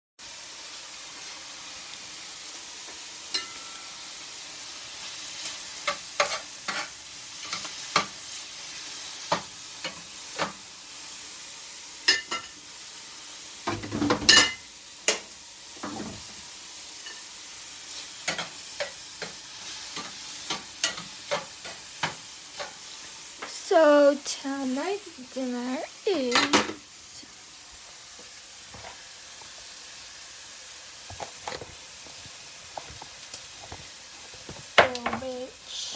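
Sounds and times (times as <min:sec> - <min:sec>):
food sizzling in a frying pan: 0:00.2 - 0:35.9
tongs clacking against a pan: 0:03.2 - 0:04.0, 0:17.9 - 0:22.9.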